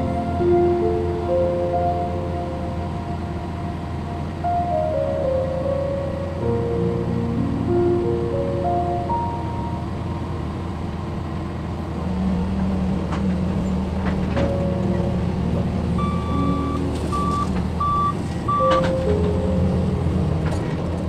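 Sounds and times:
excavator diesel engine running: 0.0s - 21.0s
alarm beeps: 16.0s - 19.1s.

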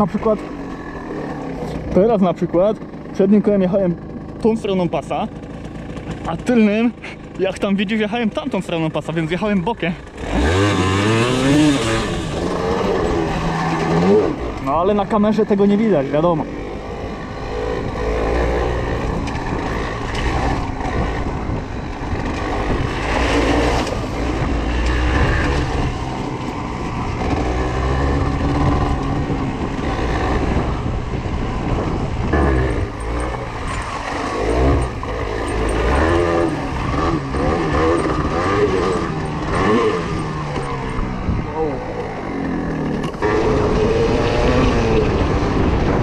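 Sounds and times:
motorcycle engine revving: 0.0s - 46.0s
wind rumble on microphone: 10.2s - 46.0s.

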